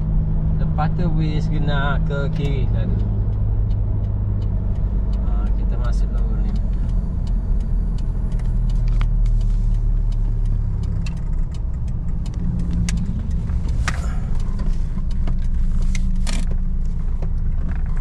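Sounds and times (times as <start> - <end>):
car engine and road rumble: 0.0 - 18.0.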